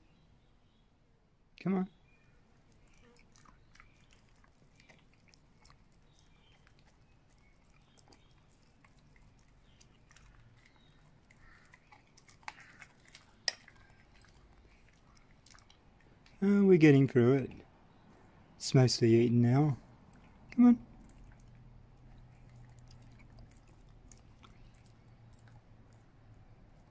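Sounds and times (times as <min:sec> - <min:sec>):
dog chewing with wet clicks: 0:02.2 - 0:16.4, 0:19.9 - 0:26.9.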